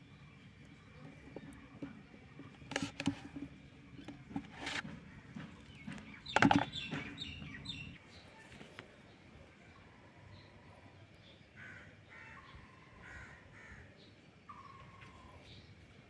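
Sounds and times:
grapes rattling in plastic colander: 0:05.6 - 0:07.3.

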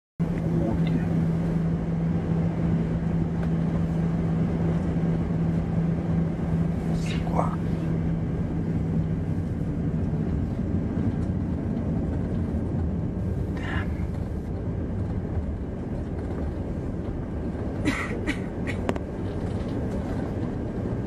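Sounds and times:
jet engine rumble in cabin: 0:00.2 - 0:21.0
low hum: 0:00.2 - 0:21.0.

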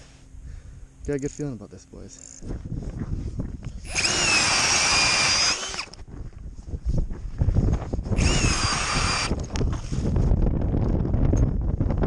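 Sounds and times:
drill motor whining: 0:03.8 - 0:06.0, 0:08.2 - 0:09.9.

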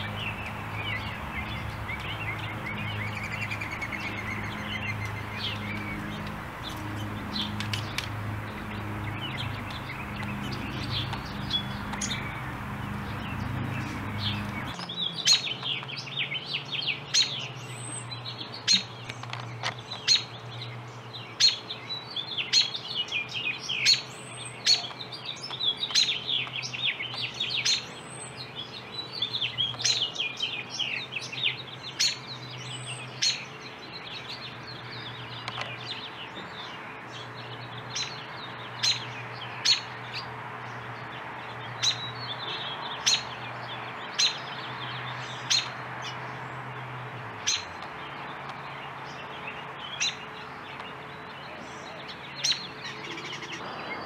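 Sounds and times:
steady low hum: 0:00.0 - 0:14.8
songbirds chirping: 0:00.0 - 0:54.0.

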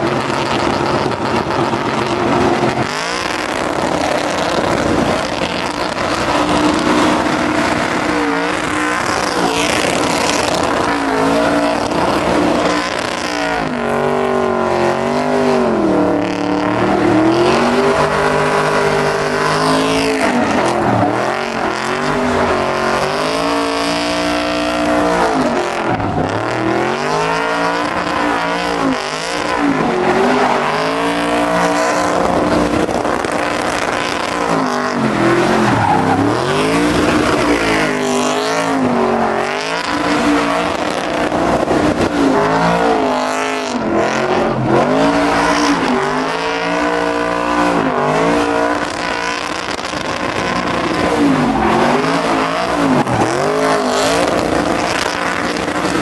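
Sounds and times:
truck engine revving: 0:00.0 - 0:56.0
tyres spinning on pavement: 0:16.2 - 0:42.7.

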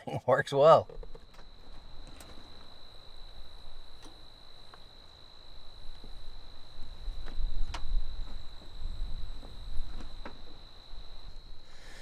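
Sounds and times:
insect trilling: 0:00.7 - 0:12.0
faint ticks: 0:06.8 - 0:08.8.

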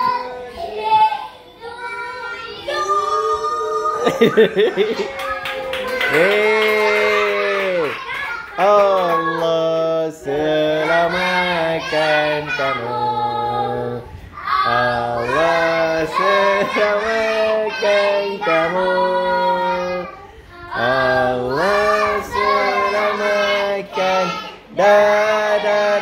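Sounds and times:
children singing in chorus: 0:00.0 - 0:09.6, 0:10.2 - 0:26.0.

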